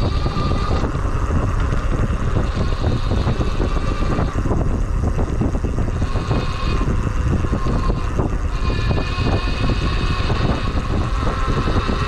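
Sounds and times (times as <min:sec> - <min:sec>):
thin high whine: 0:00.0 - 0:12.0
tyre and road noise: 0:00.0 - 0:12.0
wind buffeting microphone: 0:00.0 - 0:12.0.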